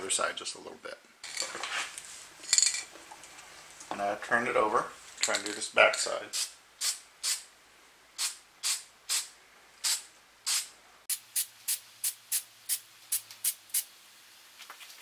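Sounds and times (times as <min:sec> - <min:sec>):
spray can hissing: 0:06.4 - 0:07.4, 0:08.2 - 0:13.9.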